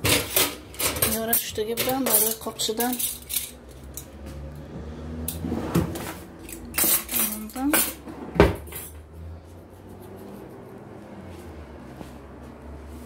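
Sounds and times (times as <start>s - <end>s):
dishes and cutlery clinking: 0.0s - 4.3s, 6.0s - 9.0s.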